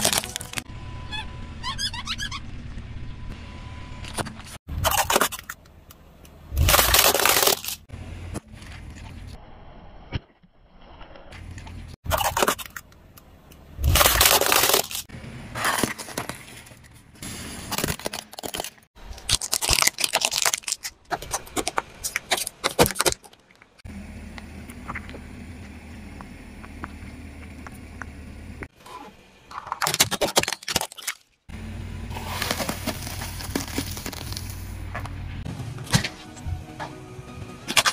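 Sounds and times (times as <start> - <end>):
plastic toys cracking: 0.0 - 0.6, 6.6 - 7.8, 13.8 - 15.1, 17.8 - 23.8, 29.5 - 31.4
tyre crushing small objects: 0.0 - 0.7, 6.5 - 9.4, 13.8 - 17.0, 17.7 - 23.8, 29.5 - 31.3, 32.1 - 35.1
steady low rumble: 23.8 - 28.7.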